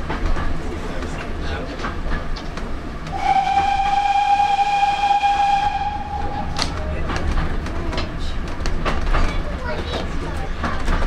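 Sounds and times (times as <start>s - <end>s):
train running rumble: 0.0s - 11.0s
train whistle blast: 3.2s - 6.7s.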